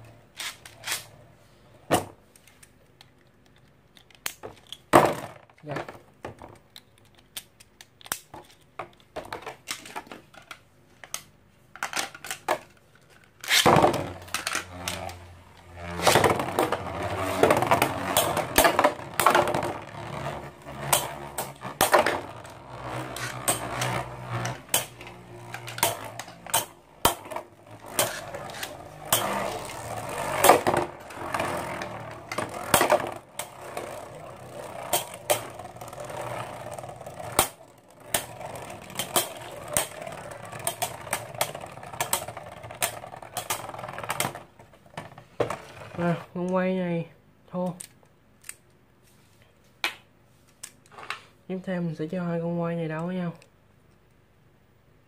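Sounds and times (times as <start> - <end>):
spinning tops grinding on plastic: 12.1 - 46.4.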